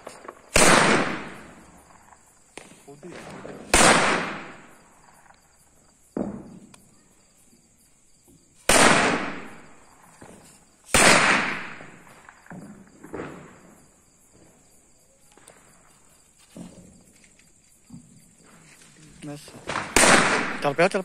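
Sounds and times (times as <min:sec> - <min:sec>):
firecracker bangs echoing: 0:00.0 - 0:05.2, 0:06.1 - 0:06.8, 0:08.6 - 0:14.6, 0:19.3 - 0:21.0
faint firecracker pops: 0:00.0 - 0:05.4, 0:06.1 - 0:06.9, 0:08.6 - 0:13.8, 0:19.5 - 0:20.6.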